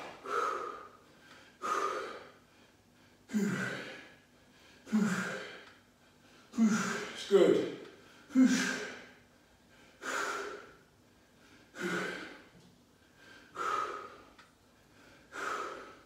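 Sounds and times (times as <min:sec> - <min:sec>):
man grunting: 0:04.9 - 0:05.5, 0:06.6 - 0:07.7, 0:08.3 - 0:09.0.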